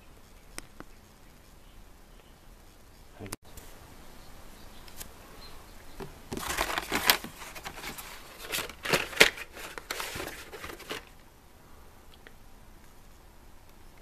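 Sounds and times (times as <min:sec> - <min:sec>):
plastic packaging crinkling and clacking: 0:06.3 - 0:11.2.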